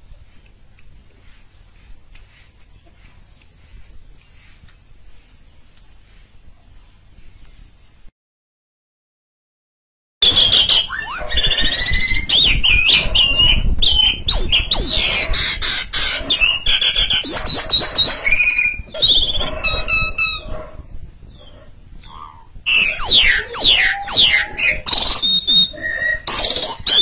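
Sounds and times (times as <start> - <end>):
starling singing whistled notes: 10.2 - 27.0.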